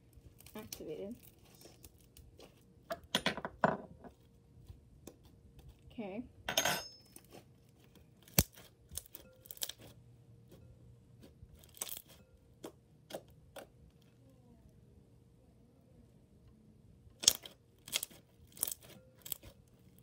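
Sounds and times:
slime being kneaded by hand: 0.2s - 2.9s, 7.1s - 14.0s, 17.2s - 20.0s.

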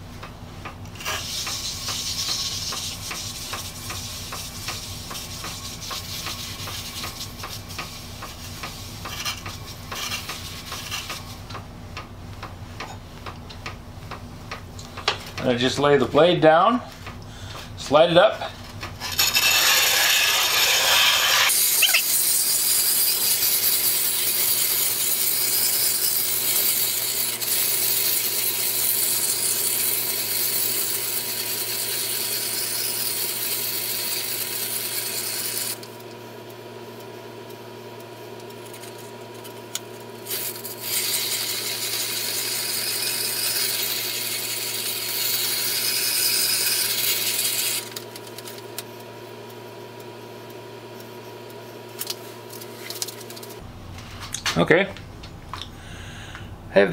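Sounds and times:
steel grinding on stone: 19.0s - 35.8s, 40.2s - 47.9s.

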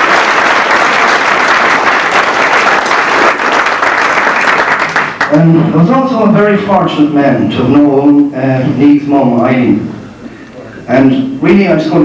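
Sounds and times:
crowd applauding: 0.0s - 5.4s.

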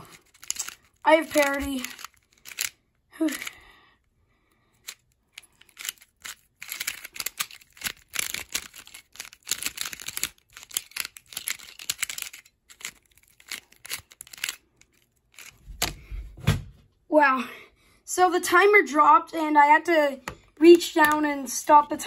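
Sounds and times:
plastic puzzle clicking: 0.0s - 3.6s, 4.7s - 16.0s, 20.2s - 21.3s.

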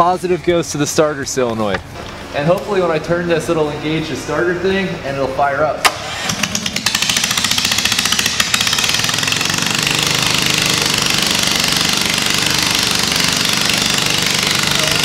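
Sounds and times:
electric starter cranking: 5.8s - 15.0s
loud unmuffled engine running: 5.8s - 15.0s.

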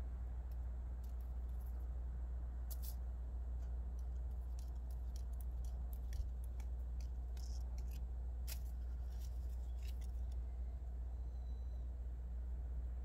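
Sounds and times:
steady low rumble: 0.0s - 13.0s
cat crunching food: 4.0s - 10.4s.

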